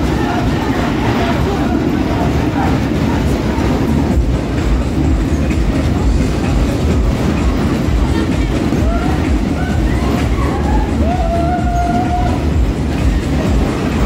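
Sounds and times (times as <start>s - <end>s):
ride cars rumbling and clattering: 0.0s - 14.0s.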